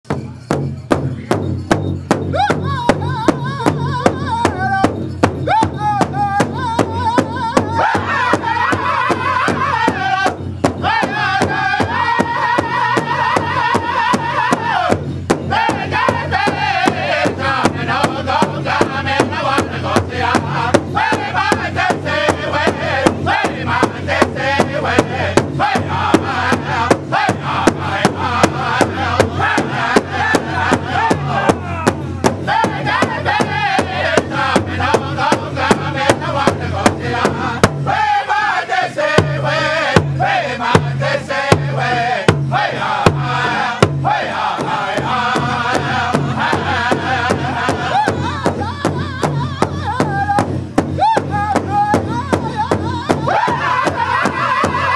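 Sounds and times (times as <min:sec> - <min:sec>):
large drum beating: 0:00.1 - 0:54.9
group chanting in high voices: 0:05.6 - 0:49.0, 0:53.2 - 0:54.9.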